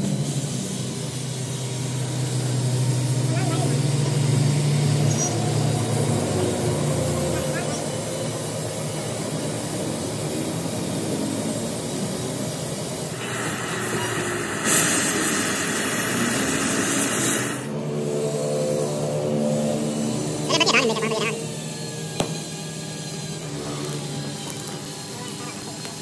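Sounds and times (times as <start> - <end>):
engine running: 0.0 - 26.0
loud hiss: 8.0 - 17.8.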